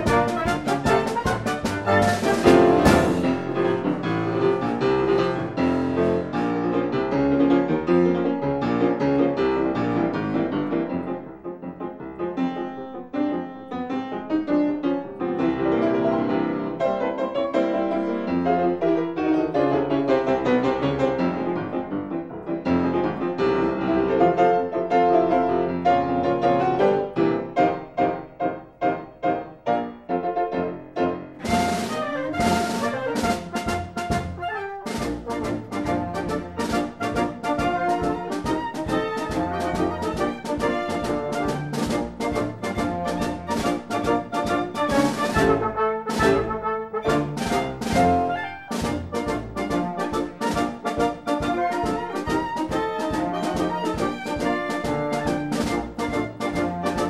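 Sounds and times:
lively piano music: 0:00.0 - 0:57.0.

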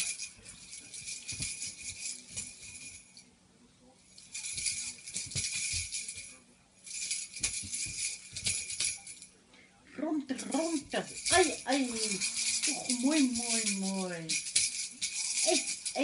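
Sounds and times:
small object rattling: 0:10.5 - 0:16.0.

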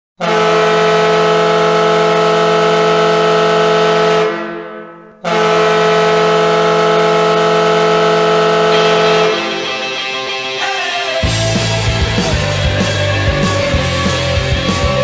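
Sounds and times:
goal horn blasts: 0:00.2 - 0:10.3.

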